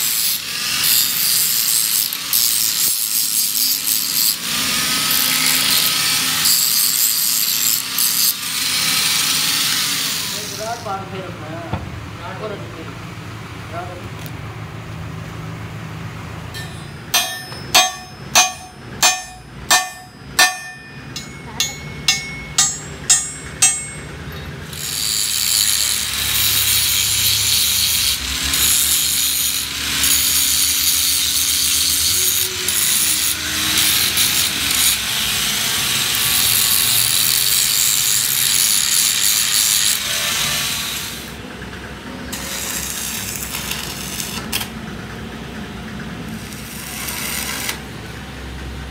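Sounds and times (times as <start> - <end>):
angle grinder grinding metal: 0.0 - 10.9, 16.6 - 41.4, 42.3 - 44.6, 46.4 - 47.9
hammer blows on steel: 16.5 - 24.6.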